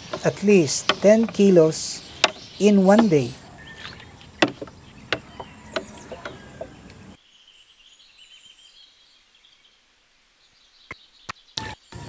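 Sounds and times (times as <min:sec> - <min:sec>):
small birds chirping: 0:00.0 - 0:12.0
net knocking on plastic crate: 0:04.4 - 0:06.7.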